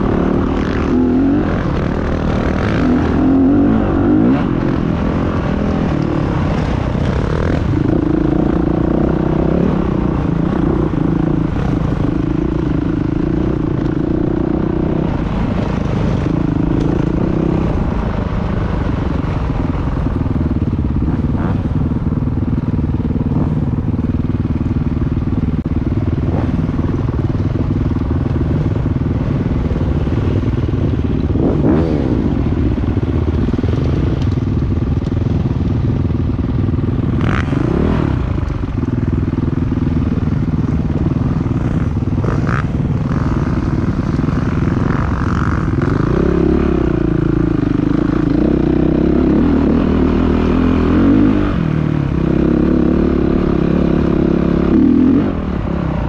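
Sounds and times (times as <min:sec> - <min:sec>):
dirt bike engine revving: 0:00.0 - 0:19.9, 0:20.8 - 0:34.5, 0:37.0 - 0:56.0.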